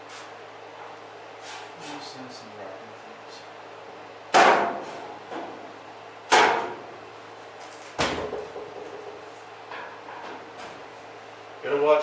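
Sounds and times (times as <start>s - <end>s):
sheet-metal duct banging: 4.3s - 5.1s, 6.3s - 6.9s.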